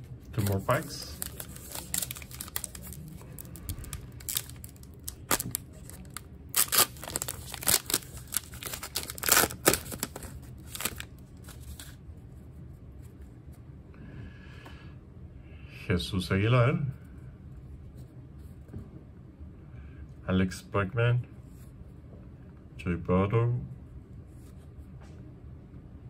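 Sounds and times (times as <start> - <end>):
wrapper tearing and crinkling: 0.3 - 12.0.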